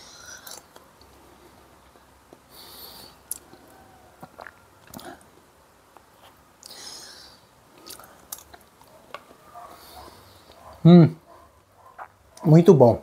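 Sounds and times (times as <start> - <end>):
person chewing: 0.0 - 9.4.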